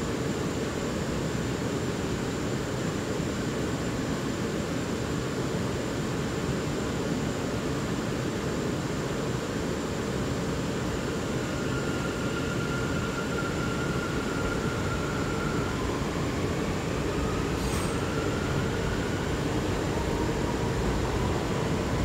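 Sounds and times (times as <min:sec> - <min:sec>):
train propulsion whine: 0:09.1 - 0:22.0
wheels rumbling on rail: 0:11.2 - 0:22.0.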